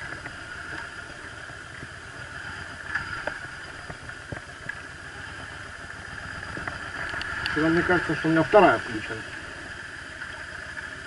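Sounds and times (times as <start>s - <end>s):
faint clicks: 0.0s - 5.0s, 5.7s - 7.6s
motorcycle engine running at low revs: 0.0s - 11.0s.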